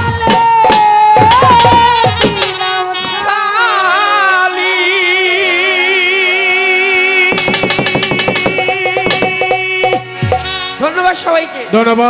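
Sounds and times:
hand drums beating: 0:00.0 - 0:02.6, 0:07.3 - 0:10.6.

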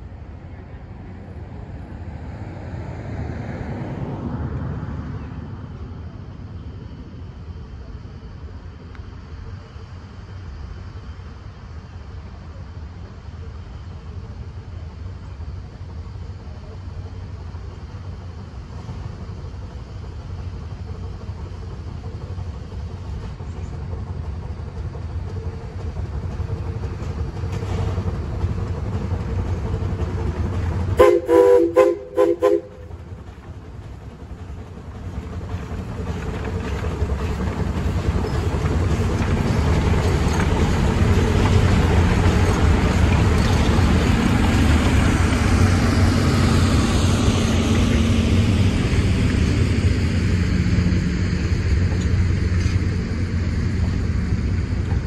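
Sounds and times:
steam train rumbling past: 0:00.0 - 0:55.0
wheels rumbling on rails: 0:00.0 - 0:55.0
steam whistle blasts: 0:31.0 - 0:32.8.

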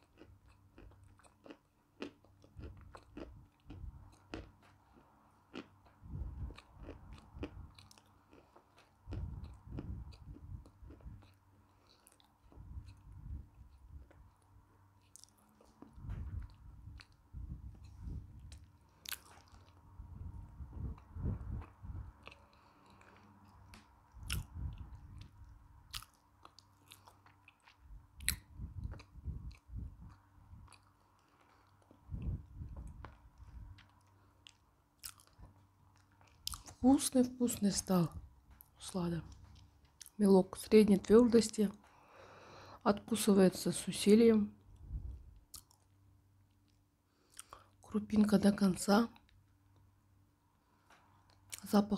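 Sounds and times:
chewing chalk crunches: 0:00.0 - 0:13.0, 0:21.6 - 0:25.3
crunchy chewing: 0:00.0 - 0:36.8, 0:45.4 - 0:45.9, 0:46.5 - 0:47.8.

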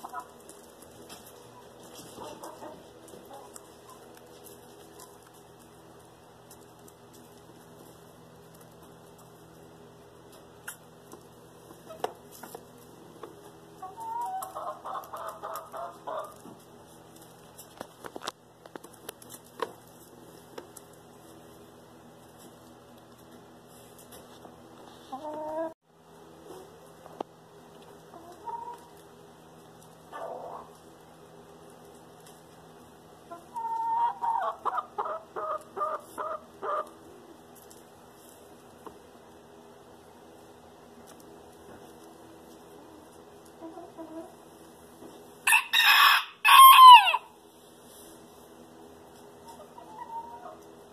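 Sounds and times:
chickens clucking: 0:00.0 - 0:09.6, 0:10.3 - 0:18.2, 0:24.9 - 0:25.8, 0:27.7 - 0:31.0, 0:33.1 - 0:37.5, 0:41.0 - 0:45.2, 0:49.1 - 0:50.9.

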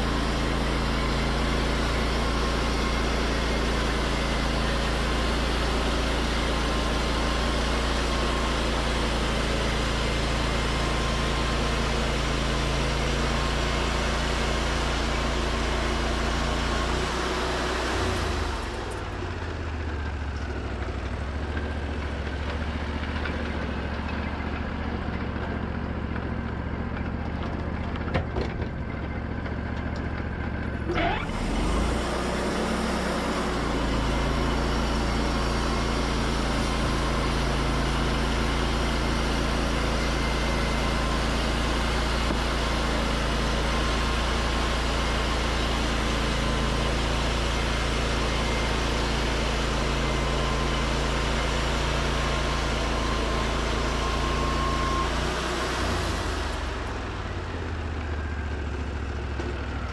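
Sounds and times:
sawmill engine running: 0:00.0 - 0:59.9.

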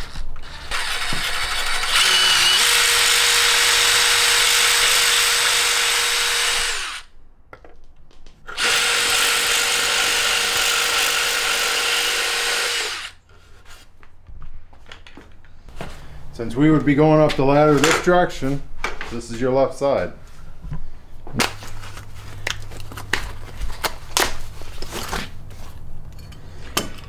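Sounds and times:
drill boring through fiberglass: 0:00.0 - 0:07.1, 0:08.5 - 0:13.2.

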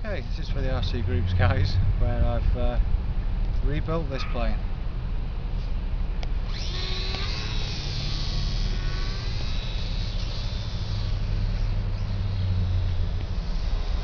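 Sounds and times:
small electric motor whine: 0:05.5 - 0:14.0.

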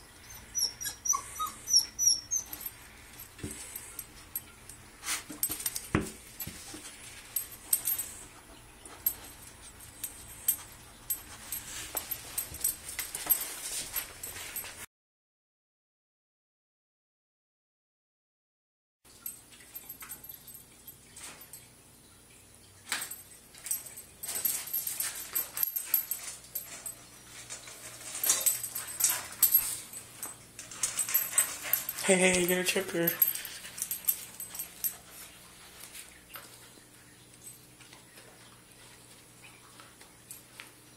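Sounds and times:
metallic clinks of dog bowl: 0:00.6 - 0:14.8, 0:19.1 - 0:21.8, 0:22.8 - 0:38.6
dogs scuffling on wooden floor: 0:05.0 - 0:14.8.

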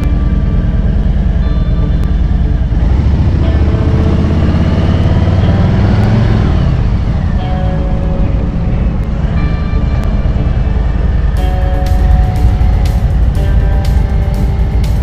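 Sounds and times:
motorcycle engine revving: 0:00.0 - 0:15.0.

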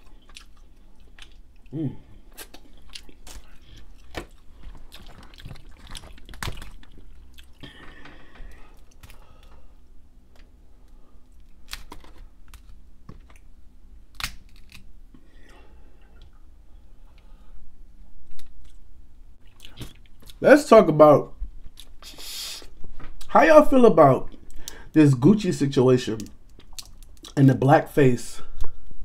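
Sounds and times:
chewing: 0:00.0 - 0:09.2
crab shell cracking: 0:02.3 - 0:07.8, 0:11.4 - 0:13.5, 0:14.1 - 0:15.0, 0:26.2 - 0:27.4.

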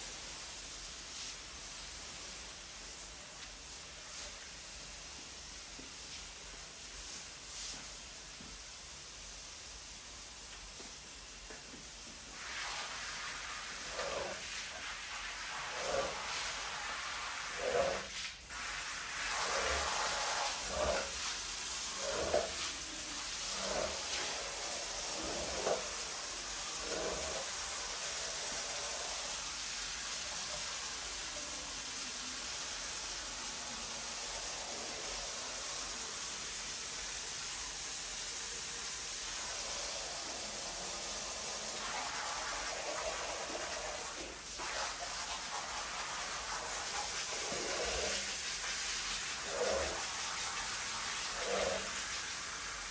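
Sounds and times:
running water hiss: 0:00.0 - 0:52.9
squeegee swishing on wet rug: 0:17.5 - 0:26.2.

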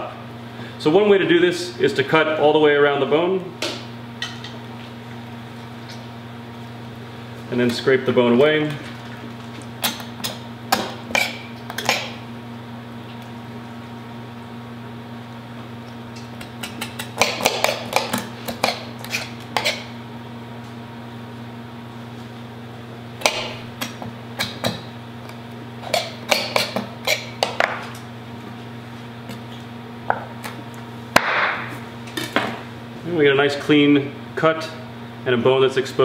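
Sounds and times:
steady low hum: 0:00.0 - 0:36.0
knife scraping meat off bone: 0:16.6 - 0:19.9.

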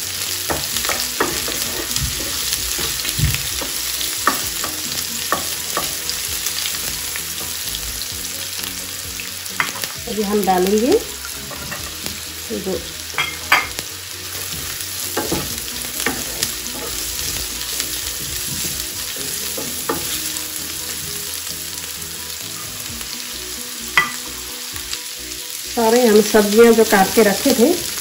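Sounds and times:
vegetables sizzling in a frying pan: 0:00.0 - 0:28.0
wooden spatula knocking against pan: 0:00.5 - 0:06.0, 0:18.1 - 0:20.2.

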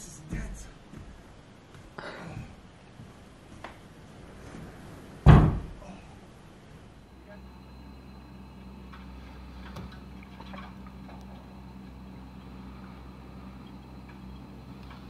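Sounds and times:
distant snowblower engine: 0:07.0 - 0:15.0.

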